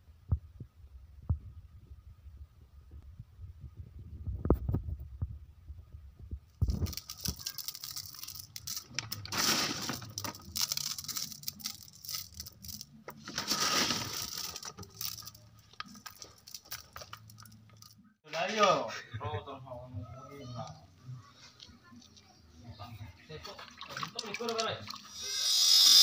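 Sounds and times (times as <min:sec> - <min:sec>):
rustling: 0:06.3 - 0:18.1
pebbles clicking and rattling: 0:06.5 - 0:18.0.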